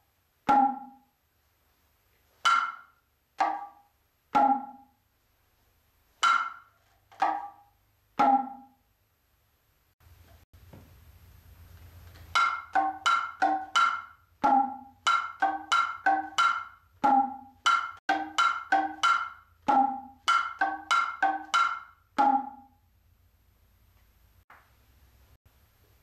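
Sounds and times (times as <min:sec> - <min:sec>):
hand drum strokes: 0:12.2 - 0:22.6.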